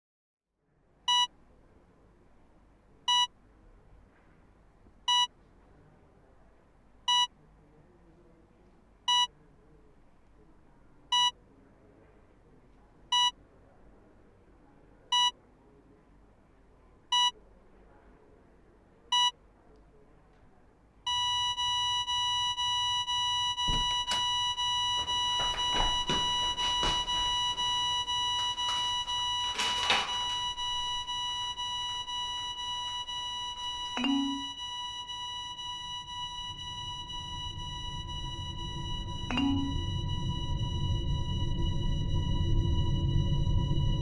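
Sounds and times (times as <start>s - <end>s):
heart monitor beeping: 5.1s - 5.3s, 9.1s - 9.3s, 21.1s - 44.0s
flatline alarm tone: 21.1s - 44.0s
knocks: 23.6s - 31.0s.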